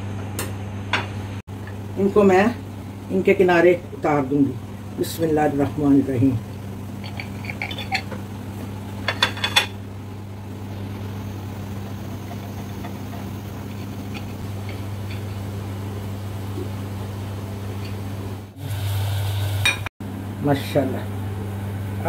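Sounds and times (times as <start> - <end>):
low electric hum: 0.0 - 22.0
gas burner hissing: 1.6 - 22.0.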